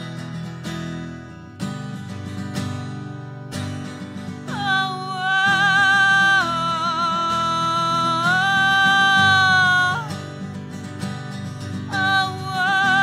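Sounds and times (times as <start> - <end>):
acoustic guitar strumming chords: 0.0 - 13.0
woman singing with vibrato: 4.5 - 10.4, 11.8 - 13.0.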